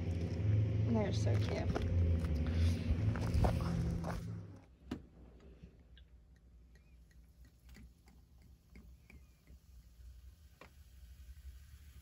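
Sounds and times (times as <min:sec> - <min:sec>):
low steady hum: 0:00.0 - 0:12.0
faint ticks and small pops: 0:06.0 - 0:09.9, 0:10.5 - 0:10.8.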